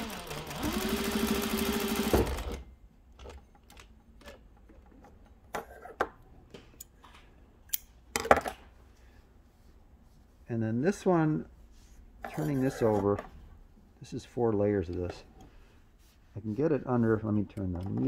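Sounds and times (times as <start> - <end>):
sewing machine stopping with knock: 0.0 - 2.6
sewing machine running: 0.0 - 2.7.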